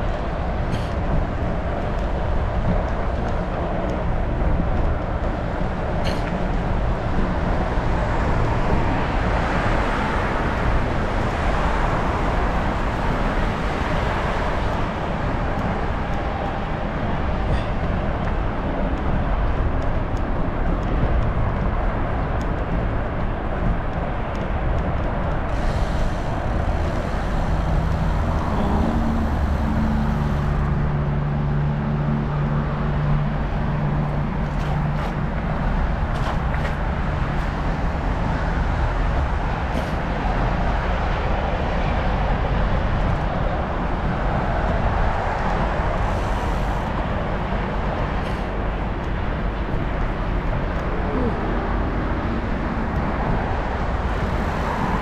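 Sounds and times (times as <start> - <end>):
wind and road noise: 0.0 - 55.0
vehicle engine passing: 25.6 - 40.5.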